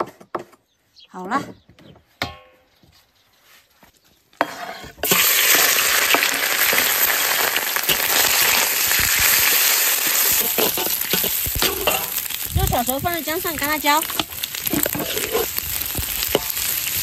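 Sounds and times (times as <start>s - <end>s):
metal spatula stirring: 4.4s - 17.0s
meat sizzling in a wok: 5.0s - 17.0s.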